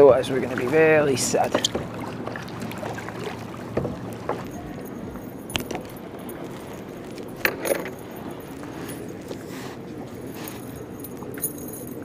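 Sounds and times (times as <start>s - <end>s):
paddling water wash: 0.0s - 12.0s
paddle clicks and knocks: 0.4s - 8.1s.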